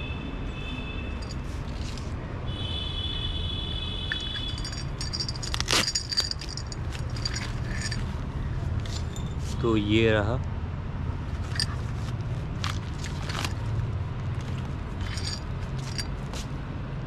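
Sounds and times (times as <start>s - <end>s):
clicks and metallic clinks: 1.2s - 2.0s, 4.1s - 8.2s, 11.4s - 11.9s, 14.4s - 16.2s.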